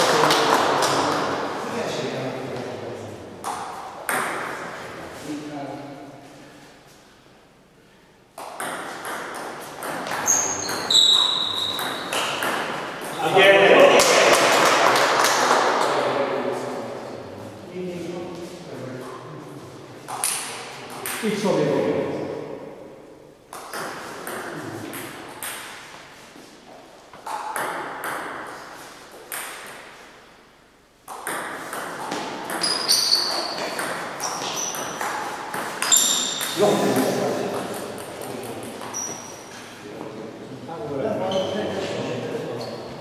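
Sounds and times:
table tennis ball clicks echoing: 8.4s - 13.2s, 27.2s - 28.5s, 31.0s - 36.6s
sneakers squeaking on floor: 9.8s - 13.2s, 31.2s - 36.6s, 38.6s - 39.8s, 41.2s - 43.0s.

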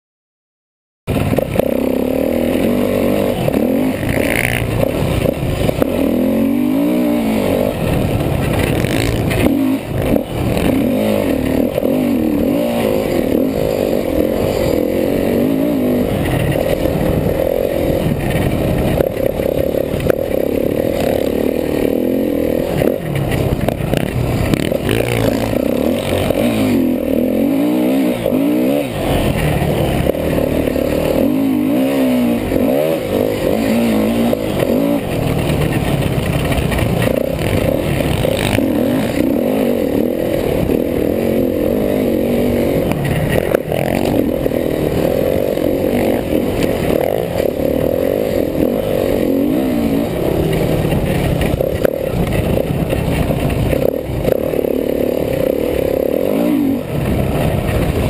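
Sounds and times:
motocross bike engine revving: 1.1s - 58.0s.

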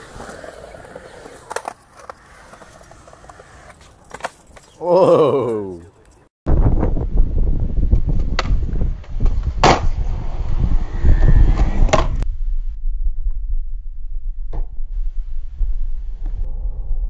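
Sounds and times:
skateboard wheels rolling on concrete: 0.0s - 6.3s, 7.1s - 12.3s.

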